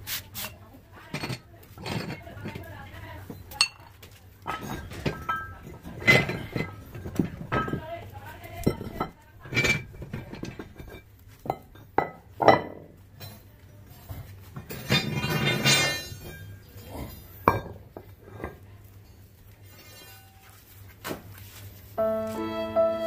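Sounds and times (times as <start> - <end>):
metal weight plates clinking: 4.5 - 7.9.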